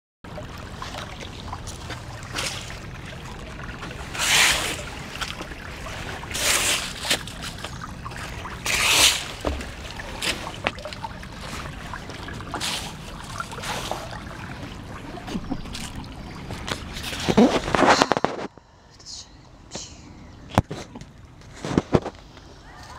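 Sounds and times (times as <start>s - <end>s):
brook trickling over rocks: 0.3s - 18.2s.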